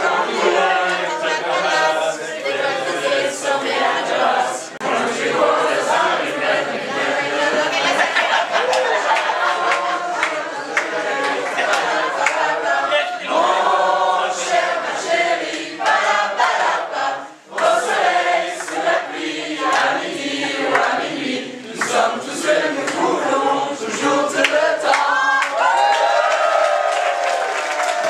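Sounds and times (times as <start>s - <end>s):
group of men and women singing: 0.0s - 26.1s.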